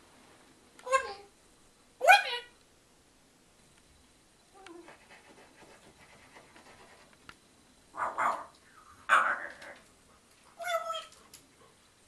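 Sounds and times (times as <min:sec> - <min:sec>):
animal barking: 0:07.9 - 0:08.5, 0:09.1 - 0:09.8.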